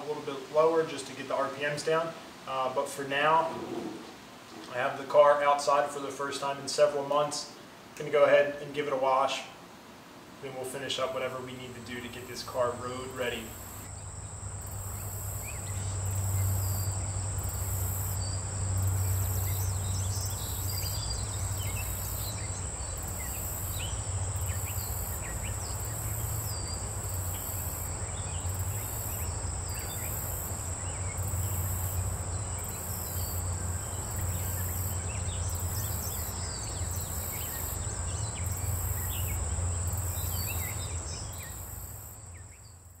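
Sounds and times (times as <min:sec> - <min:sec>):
insects trilling: 0:11.5 - 0:43.0
bird chirps: 0:15.0 - 0:31.7, 0:32.4 - 0:41.7.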